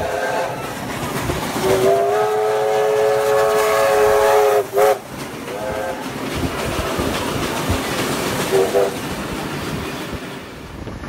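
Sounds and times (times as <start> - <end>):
steam locomotive whistle: 0.0 - 0.8, 1.6 - 6.1, 8.5 - 9.0
train running noise: 0.0 - 11.0.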